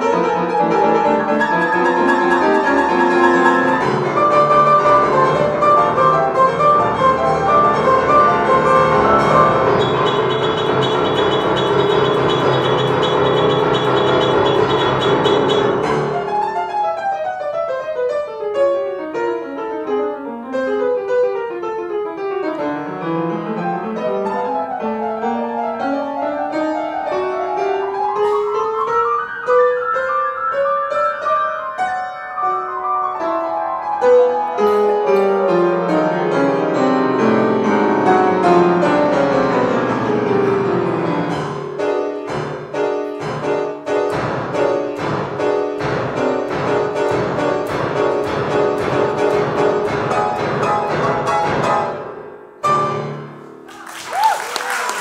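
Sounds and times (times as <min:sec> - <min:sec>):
solo grand piano: 0:00.0 - 0:55.0.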